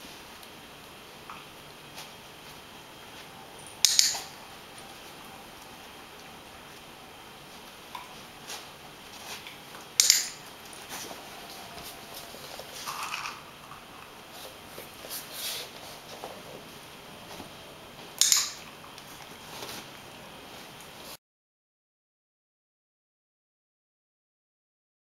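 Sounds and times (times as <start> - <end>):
loud sharp clicks: 3.8 - 4.3, 10.0 - 10.4, 18.2 - 18.6.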